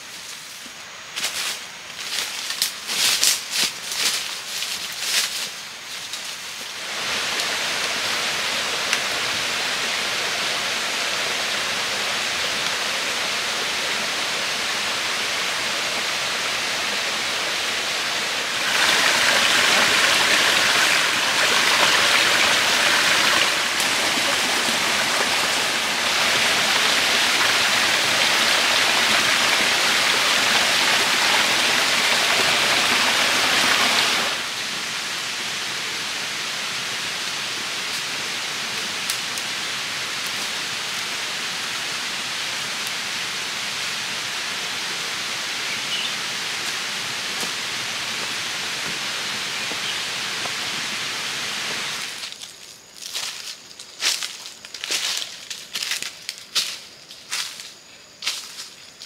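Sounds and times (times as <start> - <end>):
running water rushing: 6.7 - 52.3.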